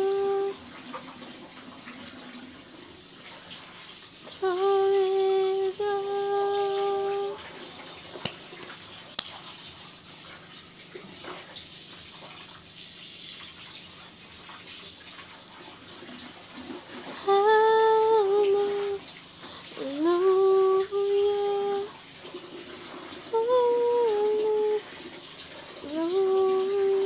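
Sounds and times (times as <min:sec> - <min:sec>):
woman singing a long note: 0:00.0 - 0:00.6, 0:04.4 - 0:07.4, 0:17.3 - 0:19.0, 0:19.8 - 0:21.9, 0:23.3 - 0:24.8, 0:25.8 - 0:27.0.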